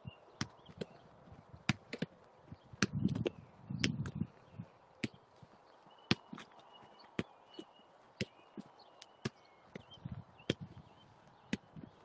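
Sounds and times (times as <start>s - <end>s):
faint ball taps and touches: 1.6s - 4.2s, 6.1s - 11.9s.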